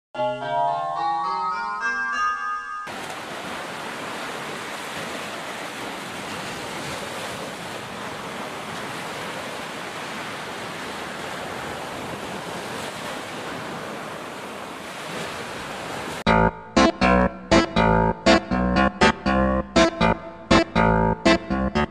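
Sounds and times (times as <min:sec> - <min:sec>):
ocean waves breaking: 0:02.9 - 0:16.3.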